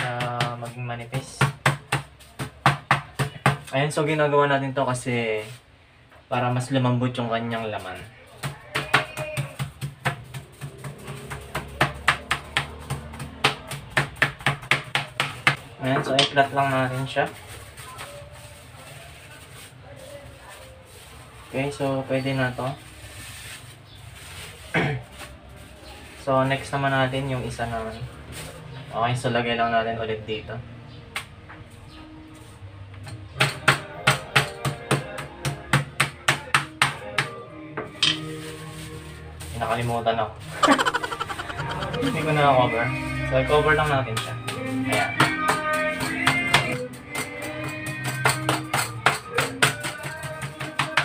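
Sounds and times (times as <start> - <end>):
meat mallet pounding: 8.7 - 15.6
background music: 30.7 - 39.6, 40.3 - 51.0.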